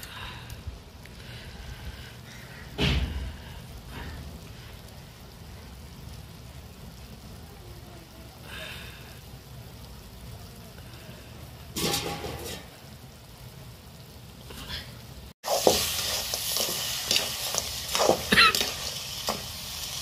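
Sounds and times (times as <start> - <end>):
crabs sizzling in a wok: 0.0 - 20.0
metal ladle scraping a pan: 11.8 - 12.7.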